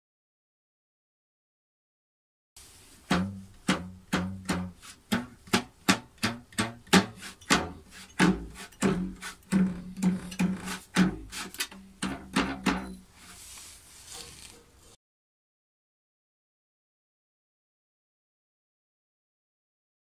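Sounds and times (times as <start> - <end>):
plucked metal tongue tones: 3.1 - 13.0.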